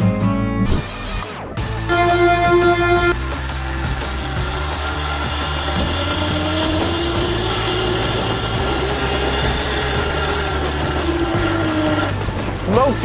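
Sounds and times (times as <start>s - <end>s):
electric motor whining: 1.9s - 12.7s
mechanical rattling and grinding: 3.1s - 13.0s.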